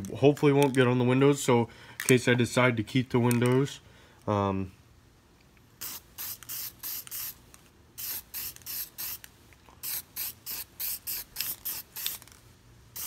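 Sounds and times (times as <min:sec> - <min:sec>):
spray can hissing in puffs: 0:05.8 - 0:13.0.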